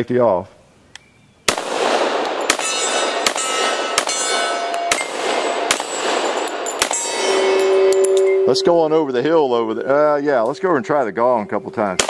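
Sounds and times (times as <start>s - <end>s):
pistol shots: 1.5s - 7.6s
steel targets ringing: 2.3s - 10.0s.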